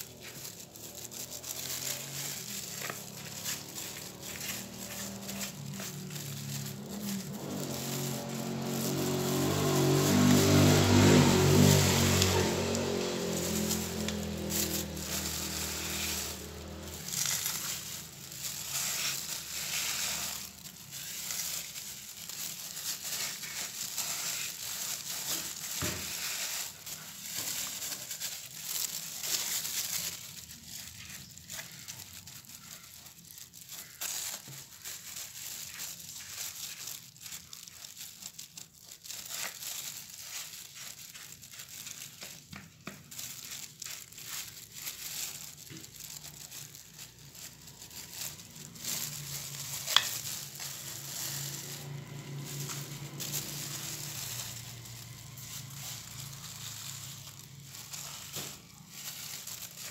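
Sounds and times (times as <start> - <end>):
brush scrubbing soil: 0.0 - 59.9
gloved hand scraping mulch: 0.0 - 59.9.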